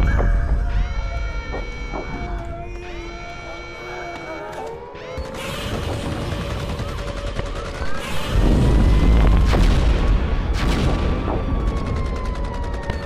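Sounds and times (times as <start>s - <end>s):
deep rumble: 0.0s - 3.8s
heavy booms and crashes: 8.0s - 12.2s.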